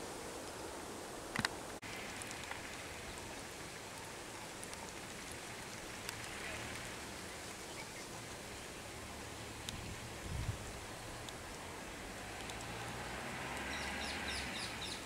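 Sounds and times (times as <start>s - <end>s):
faint outdoor hiss: 0.0s - 15.0s
faint clicks: 1.3s - 8.7s, 9.6s - 9.8s, 11.2s - 11.6s, 12.2s - 12.9s, 13.5s - 15.0s.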